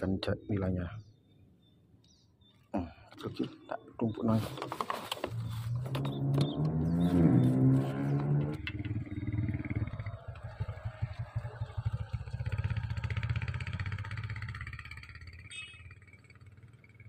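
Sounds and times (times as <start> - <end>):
motorcycle engine passing: 5.3 - 17.0.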